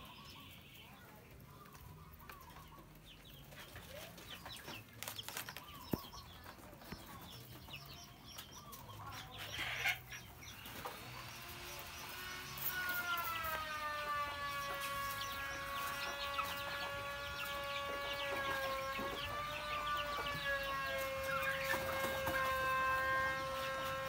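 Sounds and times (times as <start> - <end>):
chicks clucking and peeping: 0.0 - 24.0.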